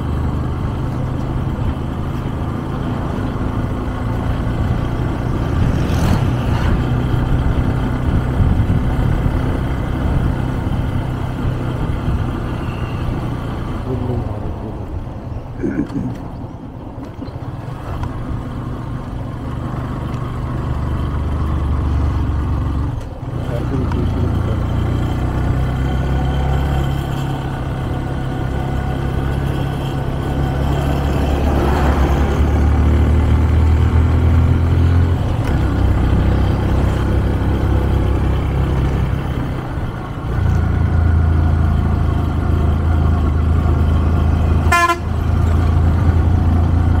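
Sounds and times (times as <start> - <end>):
motorcycle engine and wind rumble: 0.0 - 47.0
motorcycle horn toot: 44.7 - 45.2.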